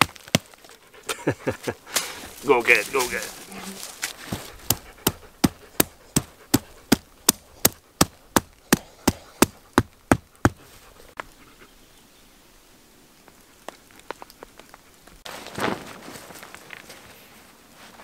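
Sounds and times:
stake being hammered into ground: 0:00.0 - 0:00.5, 0:04.7 - 0:10.6.

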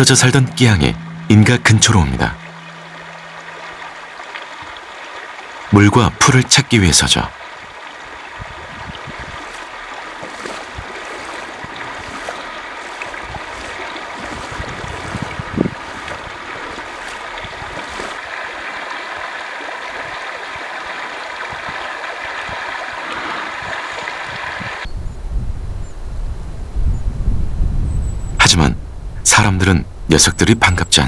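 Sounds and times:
river running over gravel: 0:00.0 - 0:24.9.

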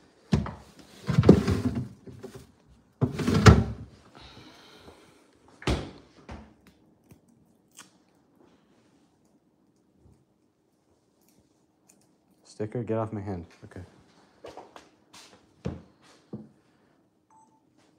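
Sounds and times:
bottles rattling in fridge door: 0:01.0 - 0:02.4, 0:03.0 - 0:03.9.

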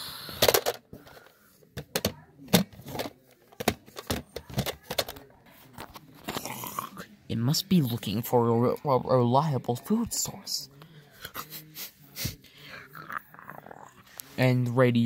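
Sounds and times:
plastic toy clicks and knocks: 0:00.4 - 0:01.2, 0:01.8 - 0:05.2.

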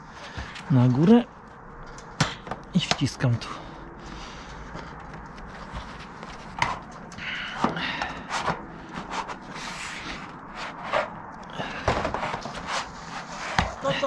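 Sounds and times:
gloves rubbing on metal: 0:08.3 - 0:11.3.

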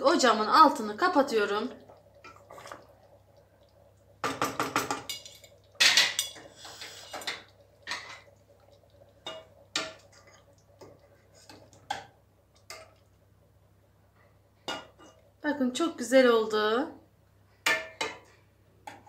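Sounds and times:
utensils clinking against metal pot: 0:04.6 - 0:08.3.

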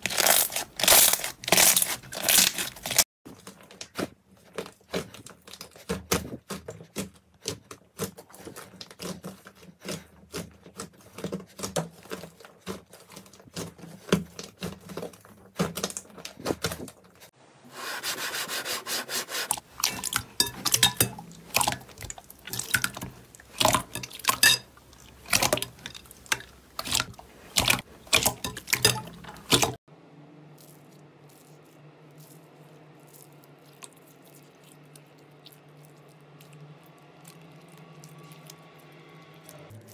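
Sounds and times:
slime crackling and popping: 0:00.0 - 0:03.0
wet slime squelching: 0:00.0 - 0:17.4, 0:19.3 - 0:29.9, 0:30.5 - 0:39.9.

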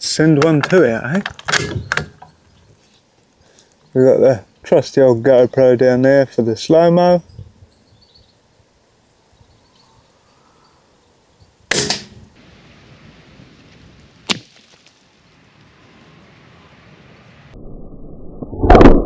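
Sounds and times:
suppressed rifle shot: 0:11.7 - 0:12.2.

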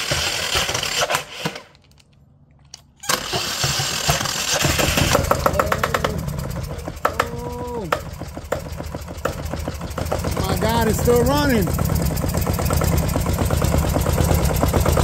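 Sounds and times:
exhaust hissing splutter: 0:03.2 - 0:15.0
diesel engine running: 0:03.3 - 0:15.0.

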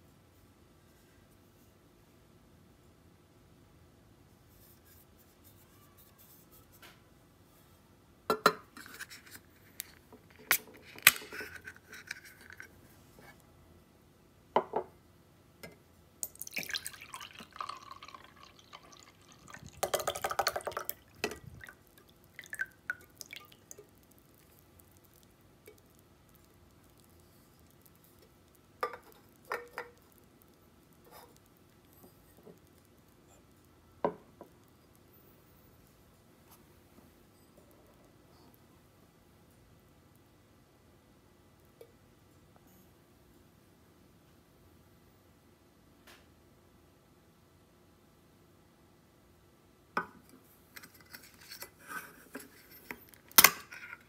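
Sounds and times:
drink pouring into glass: 0:16.2 - 0:24.6.

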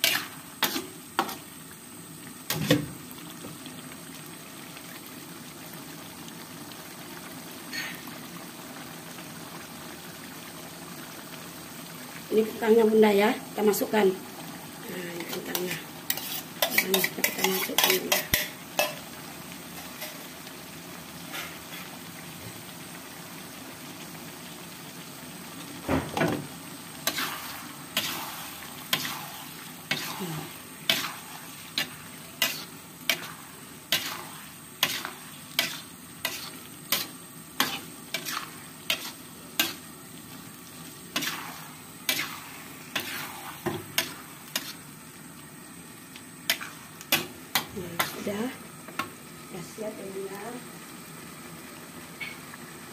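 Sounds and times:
metal spatula scraping wok: 0:00.0 - 0:01.4, 0:15.2 - 0:19.0, 0:27.0 - 0:39.9, 0:41.1 - 0:44.9
low sizzle: 0:00.0 - 0:52.9.

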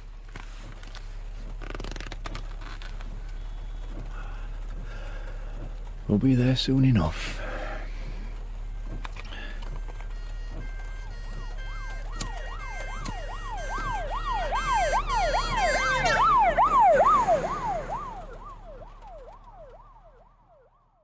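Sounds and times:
emergency siren wailing: 0:08.1 - 0:21.0.

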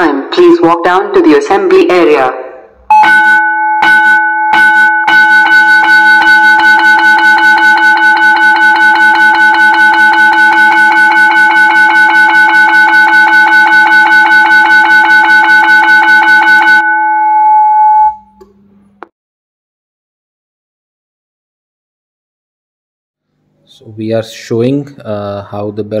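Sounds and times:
school bell ringing over loudspeakers: 0:02.9 - 0:18.2.

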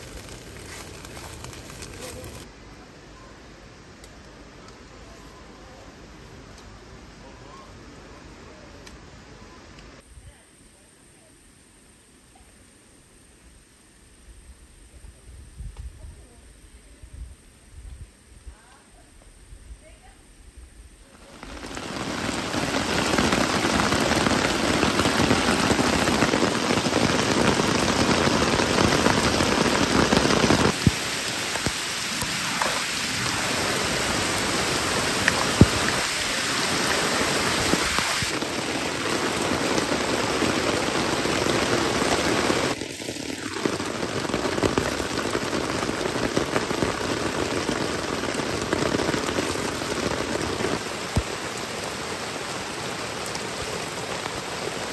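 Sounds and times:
water pouring off tarp: 0:00.0 - 0:02.5, 0:21.2 - 0:54.9
heavy rain on tarp and deck: 0:00.0 - 0:54.9.

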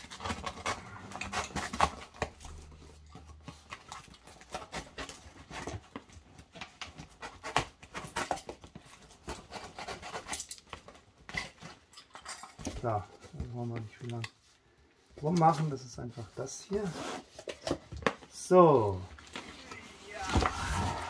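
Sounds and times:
cardboard flaps scraping and rustling: 0:00.0 - 0:11.0, 0:19.2 - 0:21.0.

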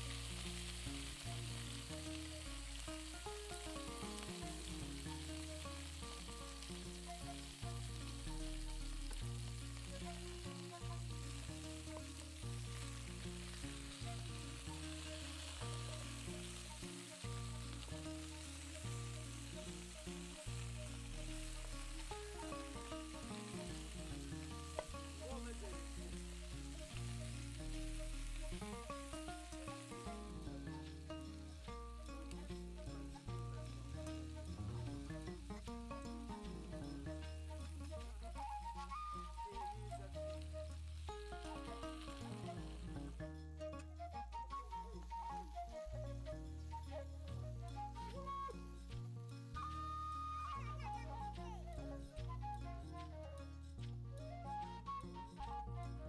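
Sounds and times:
onions sizzling in a pot: 0:00.0 - 0:54.7
soft background music: 0:00.0 - 0:56.0.

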